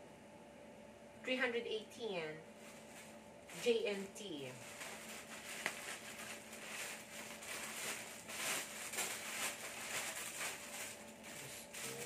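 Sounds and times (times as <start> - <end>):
plastic pouch rustling and crackling: 2.6 - 3.6, 4.5 - 12.0.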